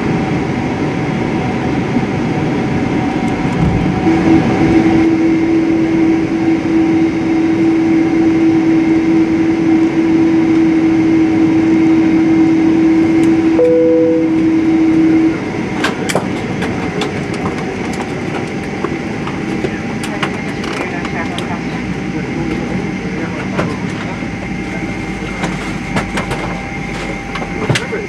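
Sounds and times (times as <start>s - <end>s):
airliner cabin rumble and hum: 0.0s - 28.0s
brief higher tone: 13.6s - 15.3s.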